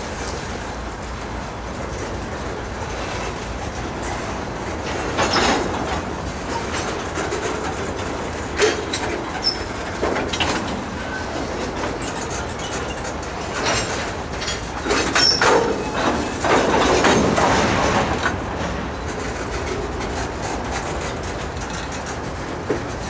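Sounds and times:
train wheels rumbling on rails: 0.0 - 23.0
wheels clacking over rail joints: 0.0 - 23.0.

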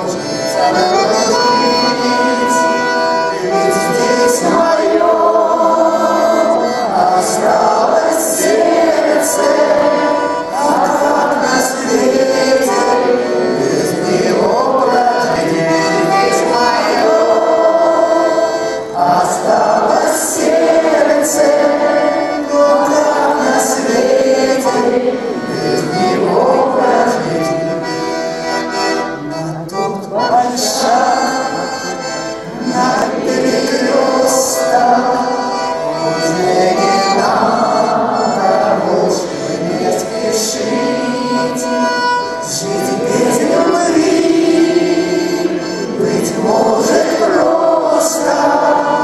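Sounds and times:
man singing: 0.0 - 28.1, 28.8 - 49.0
button accordion chords: 0.0 - 49.0.

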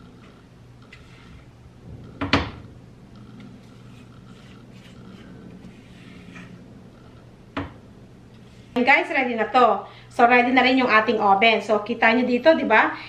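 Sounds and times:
spatula scraping metal bowl: 3.4 - 6.6.

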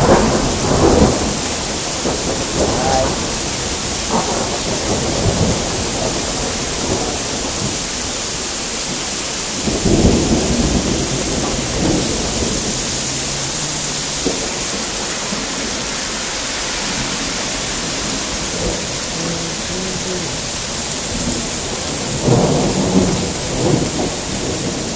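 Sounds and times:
rain and wet snow falling: 0.0 - 24.9
rumbling bursts: 9.8 - 16.2.

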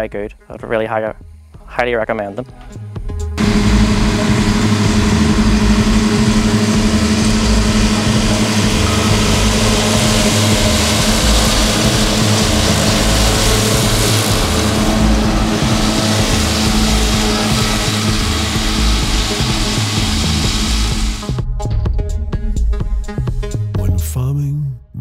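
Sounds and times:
mower cutting grass hiss: 3.4 - 21.4
tractor engine droning: 3.4 - 21.4.

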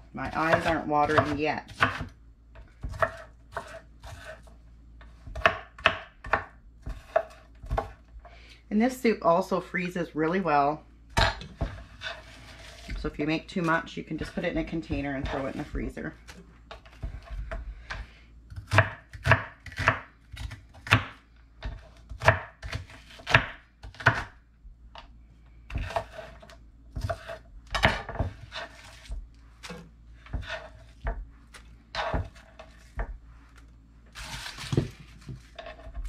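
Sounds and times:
knife chopping on wooden board: 0.2 - 2.1, 2.8 - 4.5, 5.2 - 8.0, 16.8 - 24.3, 25.7 - 31.2.

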